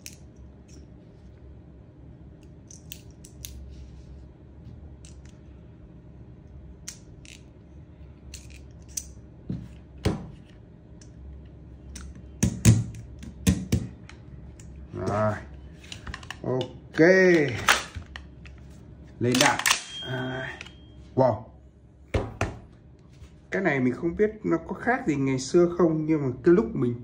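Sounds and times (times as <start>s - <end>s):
louder knock: 22.1s - 22.6s.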